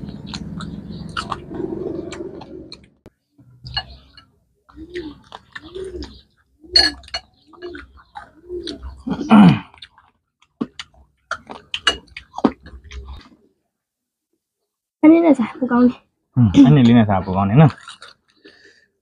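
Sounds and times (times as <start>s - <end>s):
chewing and mouth sounds: 0.0s - 3.0s, 3.7s - 13.4s, 17.7s - 18.7s.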